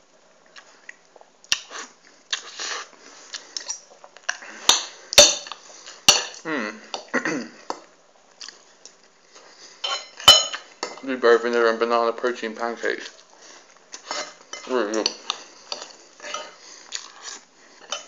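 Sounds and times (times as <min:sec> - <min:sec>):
muffled eating mouth sounds: 0:00.4 - 0:09.8, 0:13.0 - 0:18.0
cutlery scraping on ceramic plate: 0:09.8 - 0:11.0, 0:14.0 - 0:16.6.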